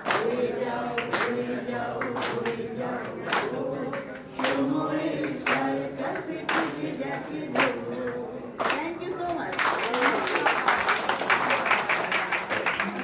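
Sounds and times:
group singing unaccompanied: 0.0 - 8.8
hands clapping on the beat: 0.0 - 13.0.

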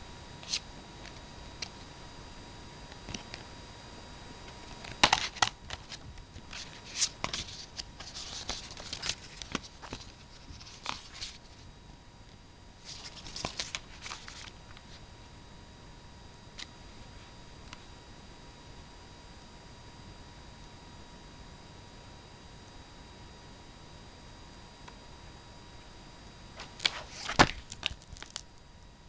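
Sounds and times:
comic book pages turning: 4.8 - 11.6, 12.8 - 15.0, 26.6 - 28.5.

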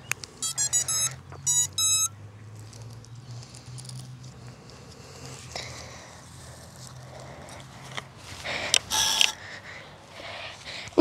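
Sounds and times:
drone electronic beeps: 0.4 - 2.1.

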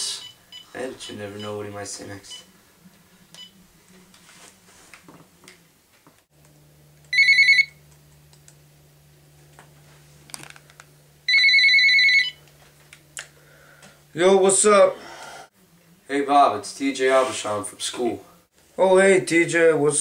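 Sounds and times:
telephone ringing electronic trill: 7.1 - 7.8, 11.3 - 12.4.

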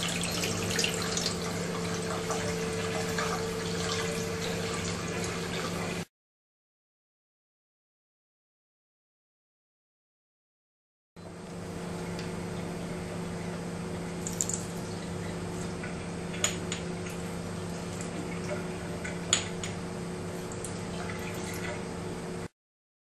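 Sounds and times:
tap water running into sink: 0.0 - 6.0, 14.2 - 14.6.

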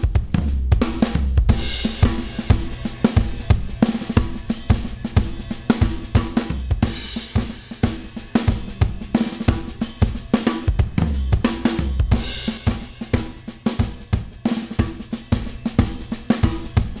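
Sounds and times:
bass: 0.0 - 17.0
drum kit playing a groove: 0.0 - 17.0.

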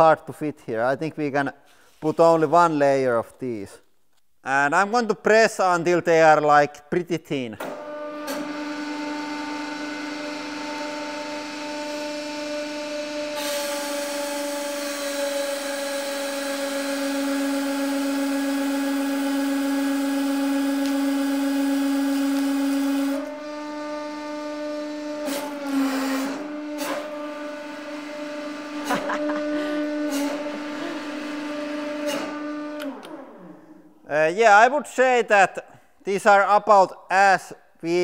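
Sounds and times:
hydraulic pump humming: 7.6 - 33.9.

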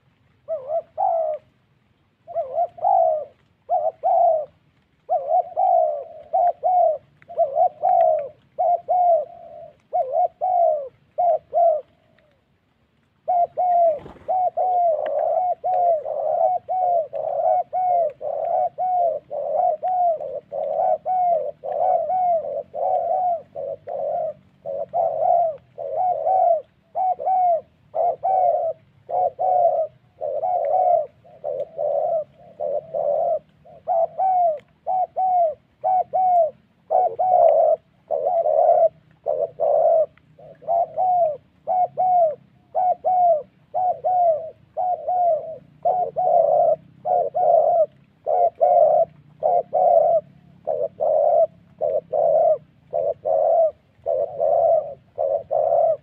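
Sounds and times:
dove cooing: 0.0 - 56.0.

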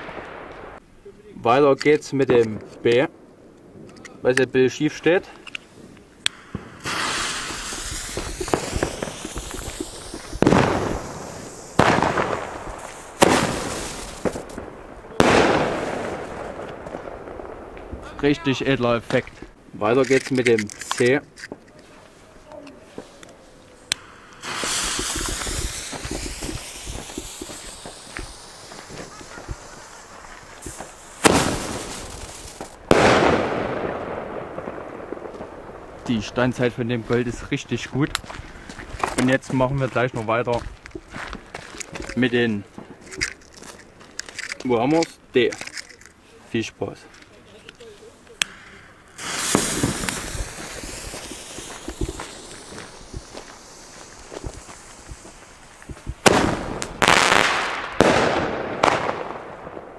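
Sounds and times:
fuse hissing and crackling: 0.0 - 59.9
firework tube loud shots: 6.3 - 18.5, 24.0 - 36.3, 49.2 - 59.9.

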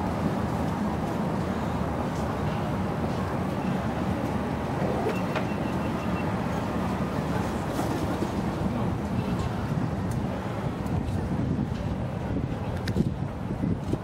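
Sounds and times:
wind buffeting microphone: 7.2 - 14.0.

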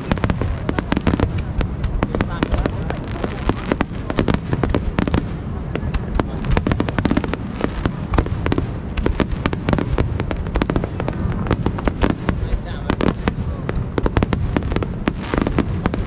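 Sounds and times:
fireworks bangs and crackles: 0.0 - 16.0
low rumble: 0.0 - 16.0.

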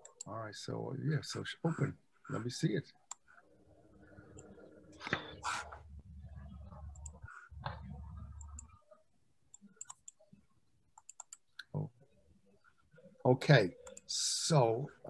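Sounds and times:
computer mouse clicking: 6.7 - 8.8, 9.5 - 11.7, 13.7 - 14.1.

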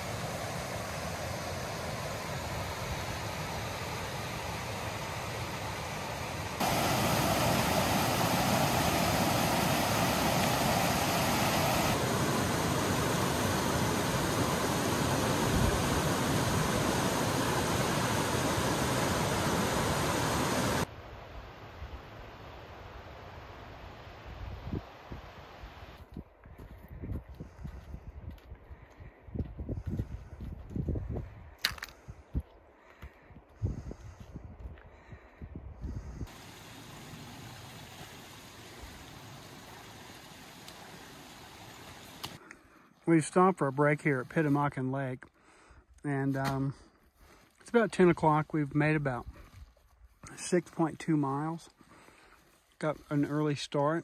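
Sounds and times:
running water rushing: 0.0 - 20.9, 36.3 - 42.4
footsteps on a trail: 26.0 - 35.5, 46.1 - 53.5.

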